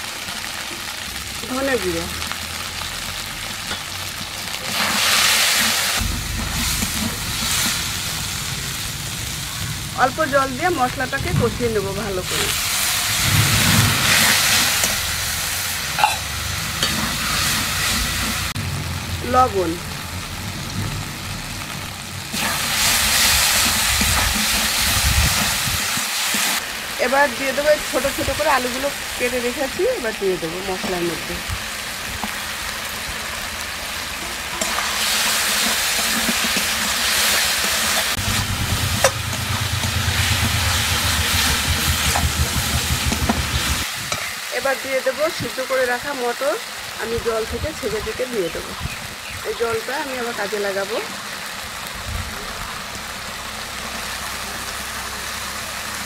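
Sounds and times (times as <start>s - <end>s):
spices sizzling in oil: 0.0s - 56.0s
low hum: 6.0s - 12.5s, 38.2s - 43.8s
metal spatula scraping: 16.0s - 18.6s.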